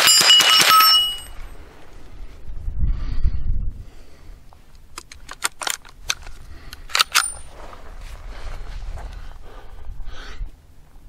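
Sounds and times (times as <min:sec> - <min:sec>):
rifle metallic clicks: 0:04.8 - 0:07.5.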